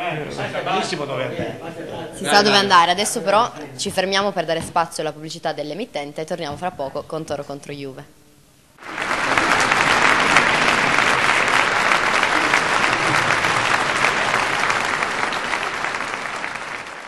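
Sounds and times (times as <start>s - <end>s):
crowd applause: 8.8s - 17.0s.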